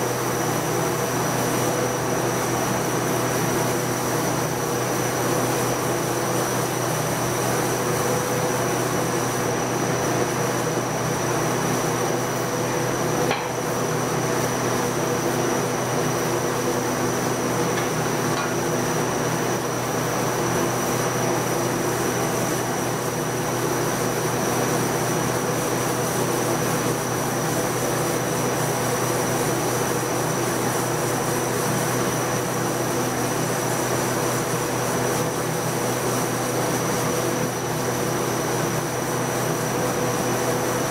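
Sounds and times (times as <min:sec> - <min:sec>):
constant hum: 0:12.4 - 0:20.2.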